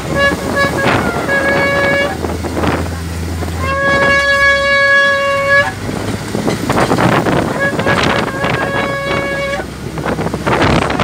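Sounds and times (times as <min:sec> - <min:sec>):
vehicle horn honking: 0:00.0 - 0:02.4, 0:03.6 - 0:05.8, 0:07.3 - 0:09.7
wind and road noise: 0:00.0 - 0:11.0.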